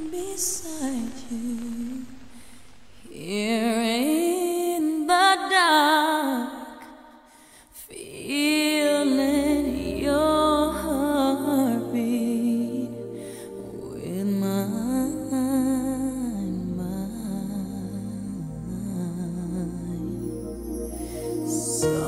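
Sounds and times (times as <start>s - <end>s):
woman singing wordless melody: 0.0s - 2.4s, 3.0s - 22.0s
soft low accompaniment: 9.1s - 22.0s.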